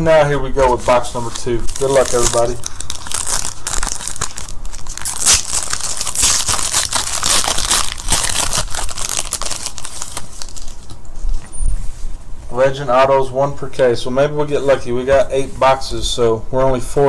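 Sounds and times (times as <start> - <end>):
foil wrapper crinkling and tearing: 0.6 - 11.0.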